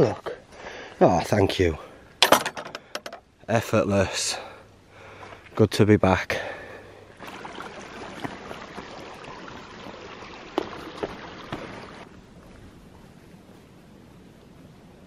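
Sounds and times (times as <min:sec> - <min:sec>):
footsteps crunching on stony path: 0:10.6 - 0:13.8.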